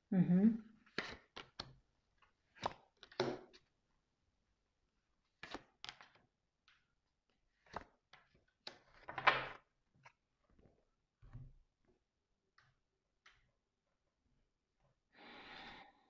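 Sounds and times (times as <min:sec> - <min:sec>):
cards tapping on table: 0:02.6 - 0:03.6.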